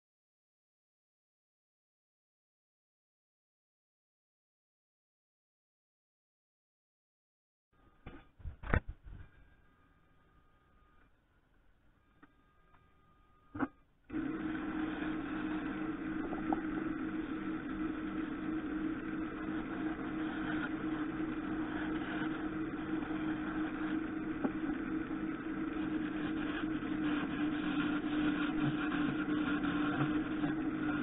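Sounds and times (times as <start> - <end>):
wood lathe motor humming: 14.1 - 31.0.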